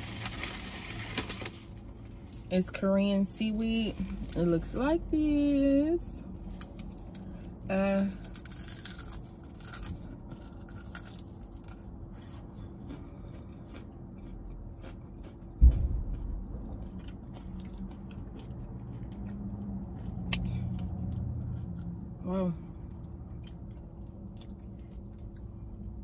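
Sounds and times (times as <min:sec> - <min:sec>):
crunching and chewing snack: 0:06.6 - 0:22.0, 0:22.8 - 0:26.0
low rumble: 0:15.4 - 0:26.0
dull thump: 0:15.6 - 0:16.9.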